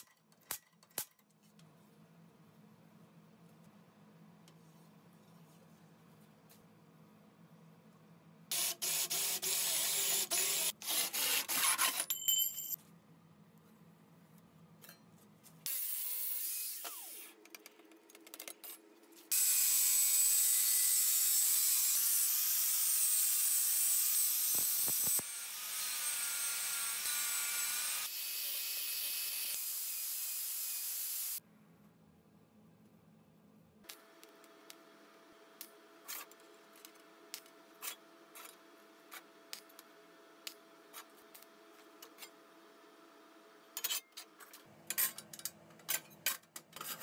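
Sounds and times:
angle grinder cutting steel: 0:08.5 - 0:11.9, 0:19.3 - 0:31.4.

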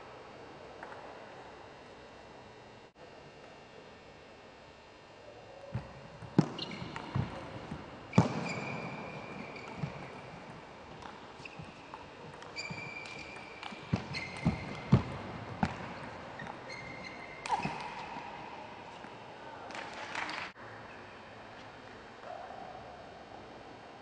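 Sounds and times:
shoes squeaking on floor: 0:06.4 - 0:18.2.

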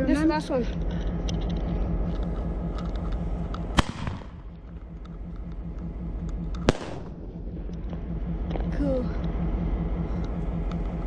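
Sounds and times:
low steady rumble: 0:00.0 - 0:11.0
firework shells bursting: 0:02.1 - 0:08.0.

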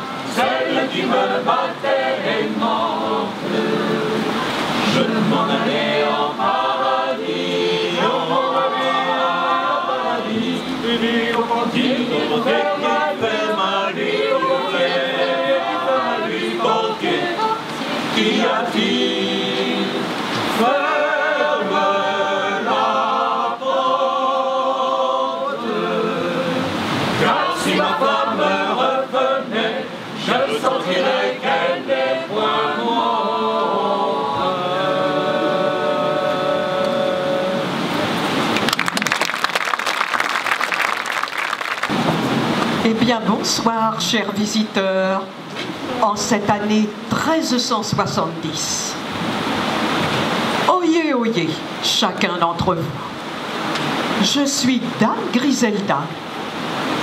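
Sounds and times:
group singing a cappella: 0:00.0 - 0:38.5.

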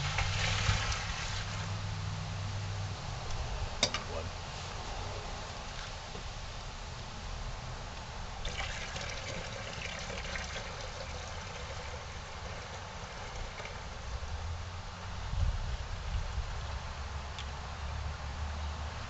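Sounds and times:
liquid pouring into plastic bucket: 0:00.0 - 0:01.7, 0:08.4 - 0:14.1.

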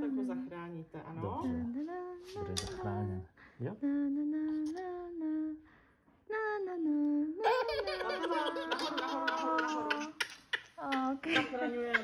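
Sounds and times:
woman humming: 0:01.5 - 0:05.6.

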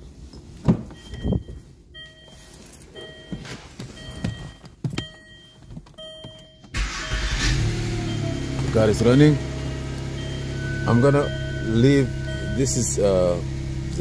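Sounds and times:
car warning chime beeping: 0:01.0 - 0:14.0
car engine cranking and running: 0:06.7 - 0:14.0.

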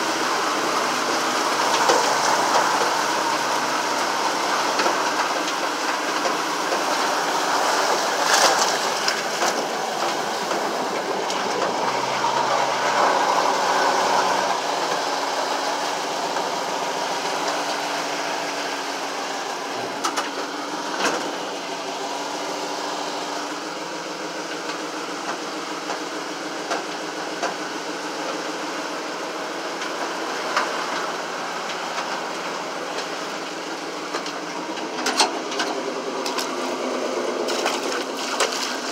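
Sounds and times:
vehicle engine running: 0:00.0 - 0:38.9.

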